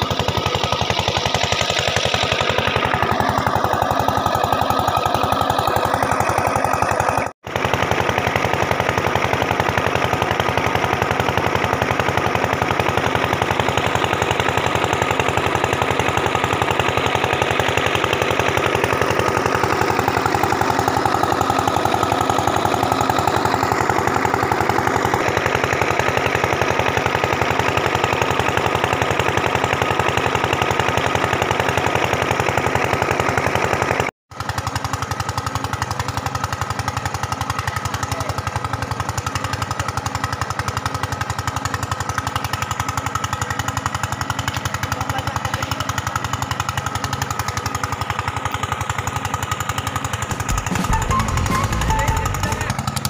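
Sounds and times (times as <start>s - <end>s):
diesel engine knocking: 0.0s - 53.0s.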